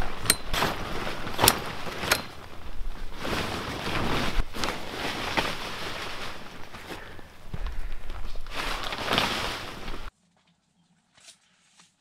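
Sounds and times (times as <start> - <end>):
tent fabric rustling: 0.0 - 10.1.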